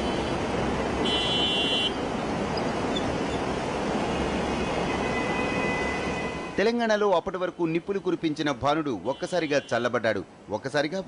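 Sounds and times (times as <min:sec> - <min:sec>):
tyres on a wet road: 0:00.0 - 0:11.0
high-pitched vehicle horn toot: 0:01.0 - 0:02.0.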